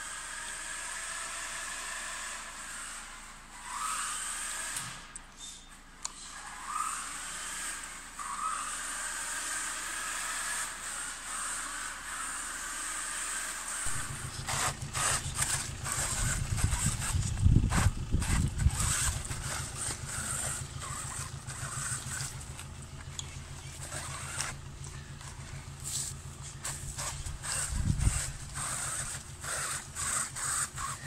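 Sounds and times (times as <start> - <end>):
electric toy truck motor whine: 0.0 - 31.0
truck rumbling over rough ground: 13.8 - 31.0.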